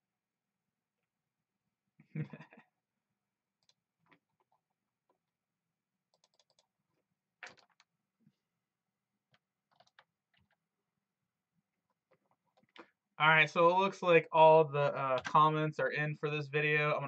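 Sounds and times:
keyboard or mouse clicks: 6.1s - 6.6s, 9.7s - 10.6s.

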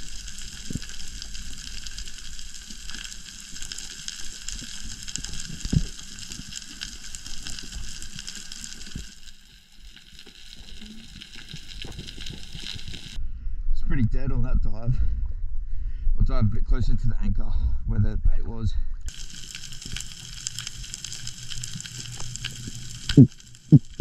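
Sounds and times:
snapping shrimp crackling hiss: 19.1s - 24.0s.

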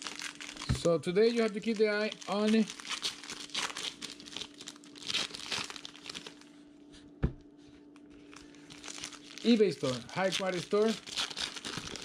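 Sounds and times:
foil wrappers crinkling and tearing: 0.0s - 6.5s, 8.2s - 12.0s
faint steady hum: 0.0s - 12.0s
cards rustling: 8.3s - 12.0s.

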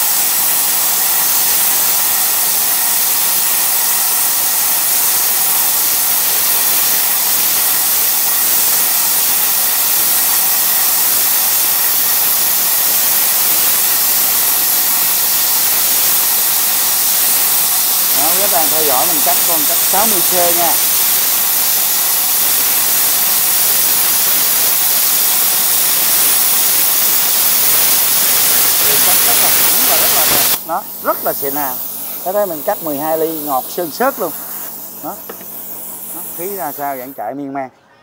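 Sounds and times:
plasma cutter hissing: 0.0s - 37.3s.

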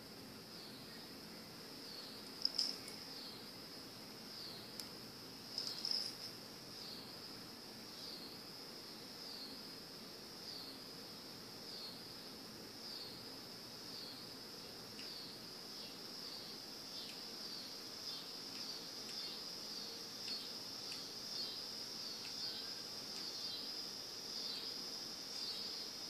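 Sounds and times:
high-pitched insect-like trill: 1.8s - 3.6s, 5.4s - 7.2s, 15.0s - 26.0s.

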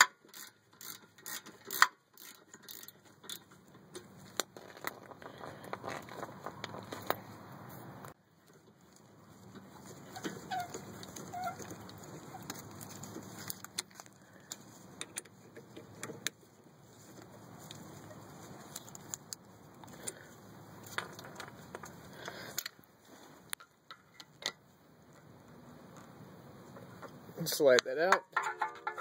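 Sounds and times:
ratchet clicking: 0.0s - 3.5s.

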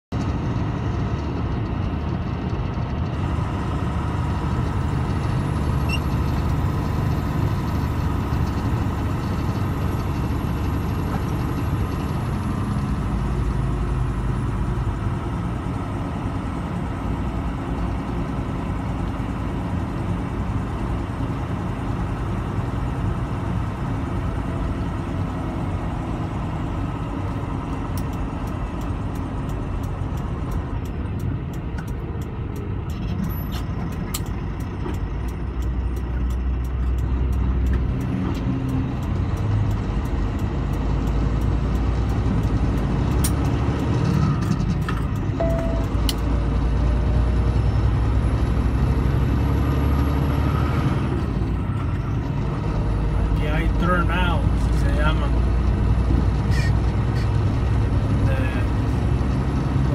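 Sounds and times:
vehicle engine and road noise: 0.0s - 59.9s.

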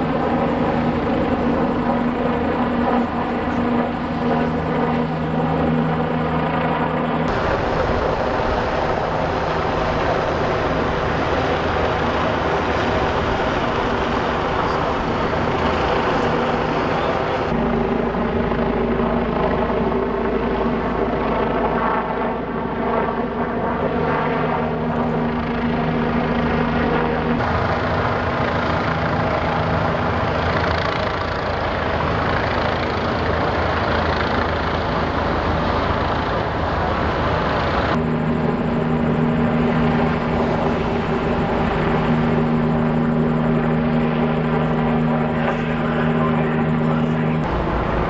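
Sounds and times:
engines droning: 0.0s - 21.8s, 23.3s - 48.0s.

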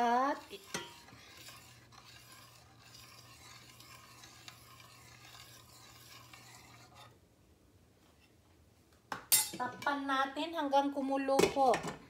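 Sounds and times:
spoon scraping a metal pan: 0.0s - 7.2s.

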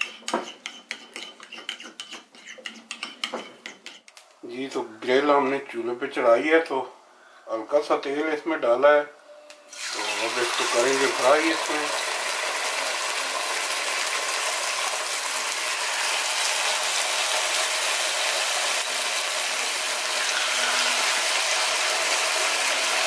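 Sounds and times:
chicken sizzling in grill pan: 9.7s - 23.0s.

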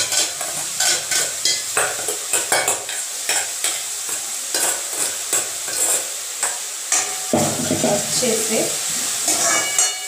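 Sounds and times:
onion sizzling in hot oil: 0.0s - 10.0s.

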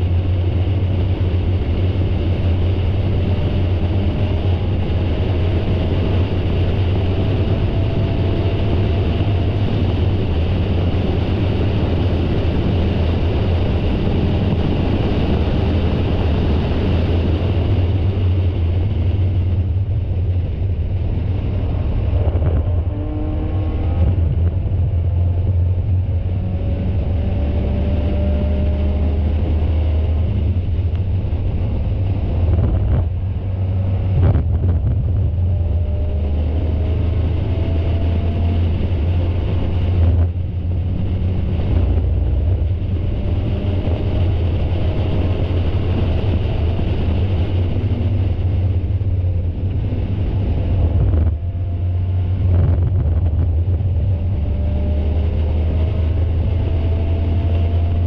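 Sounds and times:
wind noise: 0.0s - 58.0s
racing car engine revving: 20.5s - 58.0s.

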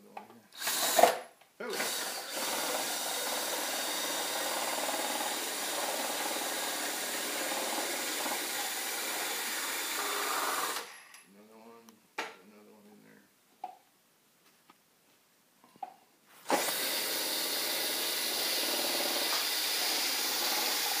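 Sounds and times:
apple grinder grinding: 0.6s - 10.9s, 16.4s - 21.0s.

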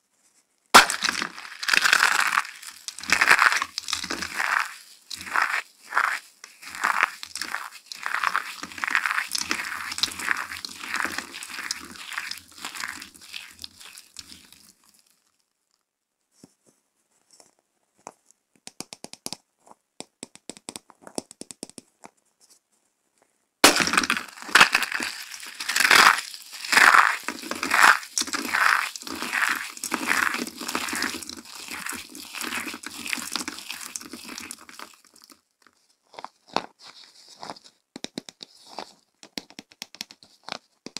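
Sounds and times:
soap shavings crunching in hands: 0.8s - 15.4s, 23.6s - 35.4s.

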